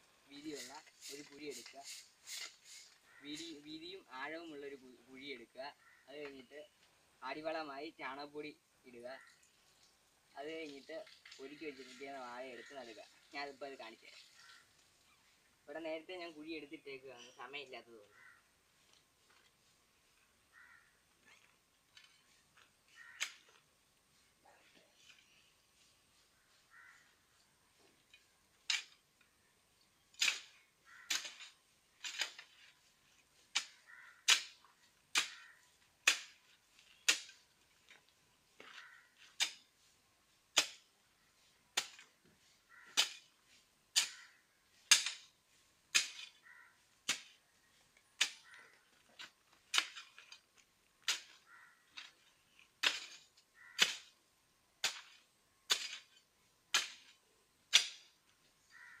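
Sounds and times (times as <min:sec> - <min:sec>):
digging tool striking soil: 0:23.1 - 0:23.7, 0:28.6 - 0:29.1, 0:30.1 - 0:39.9, 0:40.5 - 0:40.9, 0:41.7 - 0:48.6, 0:49.2 - 0:54.2, 0:54.8 - 0:58.2.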